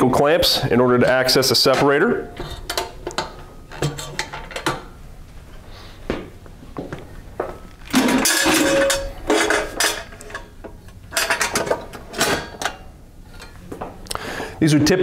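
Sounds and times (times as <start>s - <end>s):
metal housing clanking: 7.9s - 10.5s.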